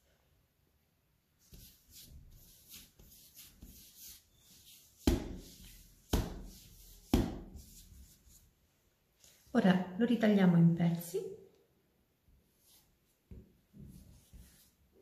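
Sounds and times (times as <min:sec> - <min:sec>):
dull pats on dough: 0:01.4 - 0:08.3
palms rubbing dough: 0:01.4 - 0:08.6.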